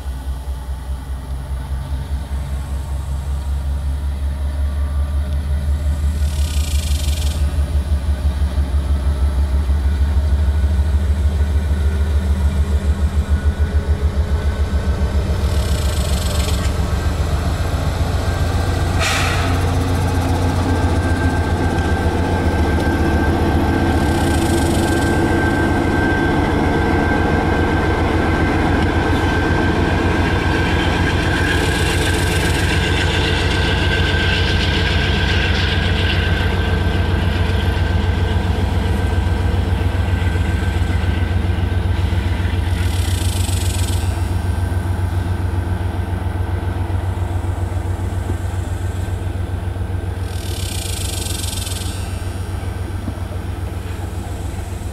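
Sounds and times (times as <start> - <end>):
steel wheels rumbling on rails: 0.0 - 54.9
low drone: 11.1 - 54.9.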